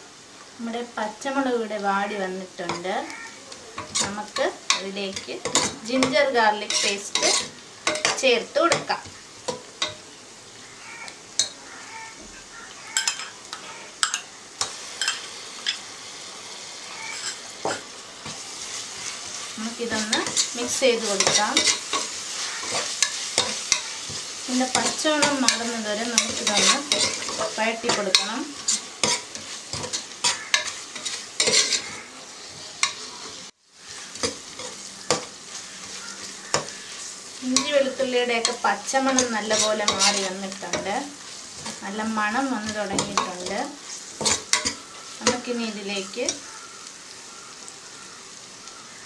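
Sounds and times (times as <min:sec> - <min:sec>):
onions sizzling in oil: 0:00.0 - 0:49.0
metal spoon scraping a pot: 0:03.8 - 0:08.2, 0:17.1 - 0:18.4, 0:19.9 - 0:33.4, 0:37.6 - 0:40.9, 0:42.7 - 0:45.5
steel spoon clinking against pot: 0:13.0 - 0:13.4, 0:24.7 - 0:31.9, 0:44.2 - 0:45.4.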